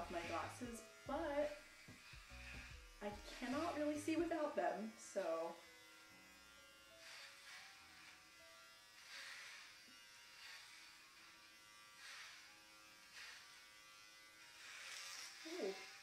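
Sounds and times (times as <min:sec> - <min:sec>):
electric hair clippers buzzing: 0:00.0 - 0:16.0.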